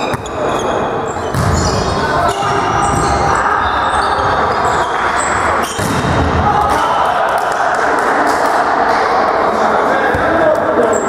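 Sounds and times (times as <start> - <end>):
shoes squeaking on floor: 0.0 - 5.9
players' voices: 0.0 - 11.0.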